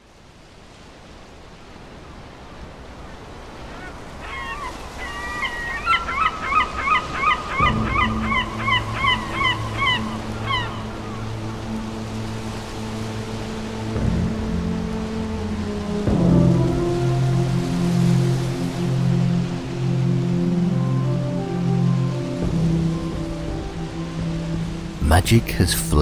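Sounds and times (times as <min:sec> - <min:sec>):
surf and waves: 0:00.0 - 0:26.0
bird calling rapidly: 0:03.7 - 0:11.3
low musical drone: 0:07.2 - 0:26.0.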